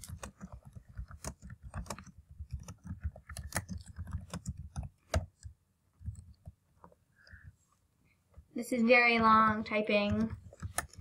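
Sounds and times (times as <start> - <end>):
keyboard typing clicks: 0.0 - 6.6, 9.2 - 11.0.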